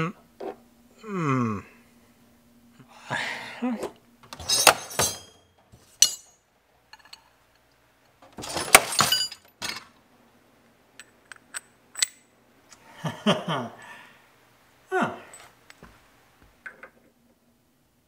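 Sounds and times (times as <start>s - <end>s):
metal wrenches and sockets clinking: 4.3s - 7.7s, 8.3s - 10.0s, 11.0s - 12.3s.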